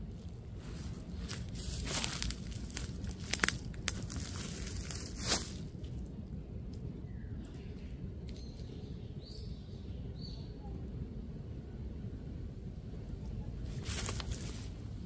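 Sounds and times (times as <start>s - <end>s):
dry leaves rustling and crackling: 0.0s - 6.1s, 13.6s - 15.0s.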